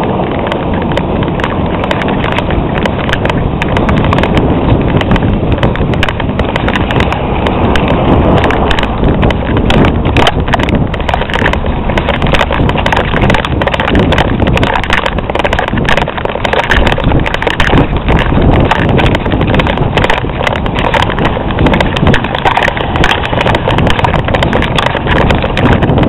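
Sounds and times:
wind buffeting microphone: 0:00.0 - 0:26.0
irregular knocking and rattling: 0:00.3 - 0:26.0.

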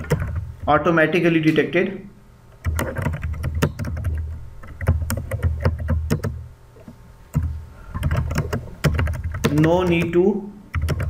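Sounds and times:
typing on keyboard: 0:02.6 - 0:06.4, 0:08.0 - 0:11.0.

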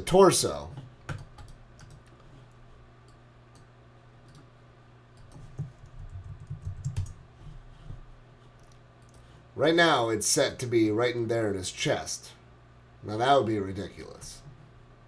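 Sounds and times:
computer keyboard typing: 0:01.0 - 0:02.2, 0:05.2 - 0:07.2.

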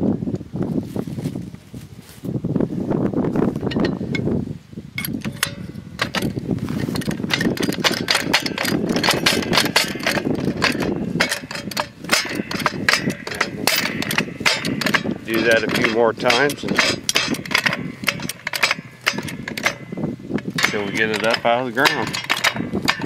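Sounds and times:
low rumbling noise: 0:00.0 - 0:23.0
metal chain clanking: 0:03.6 - 0:04.2, 0:05.0 - 0:23.0
short metal clicks: 0:05.0 - 0:23.0.

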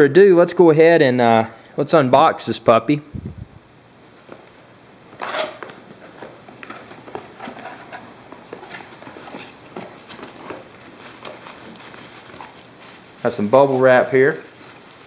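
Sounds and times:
cardboard and packaging rustling: 0:04.2 - 0:15.0
cardboard flap scraping: 0:05.2 - 0:13.1.

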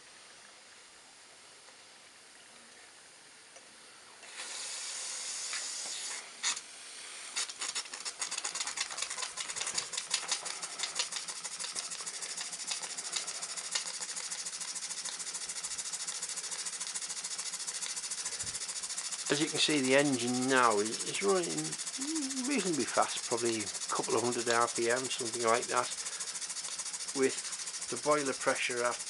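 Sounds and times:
steam hissing: 0:04.2 - 0:29.0
steam engine chuffing: 0:07.1 - 0:29.0.

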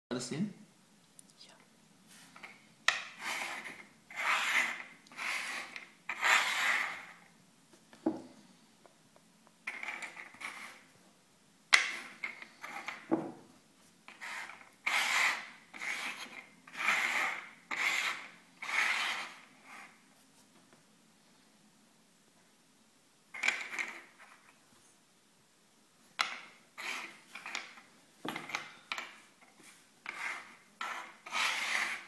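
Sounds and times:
shells scraping on wooden table: 0:02.2 - 0:07.3, 0:09.6 - 0:10.9, 0:11.7 - 0:13.4, 0:14.1 - 0:20.0, 0:23.4 - 0:24.6, 0:26.2 - 0:32.0.

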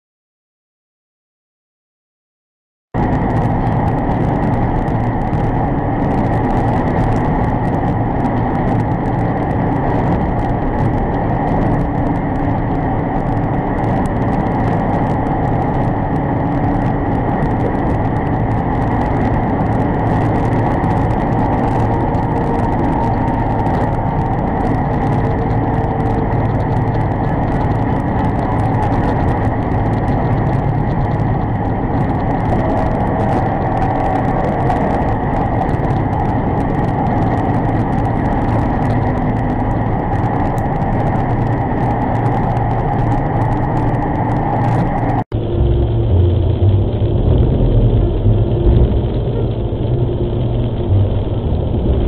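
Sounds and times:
truck engine and road noise: 0:03.0 - 0:52.0.

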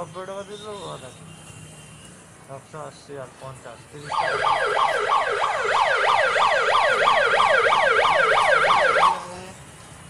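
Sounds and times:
electronic siren wailing: 0:04.1 - 0:09.2.

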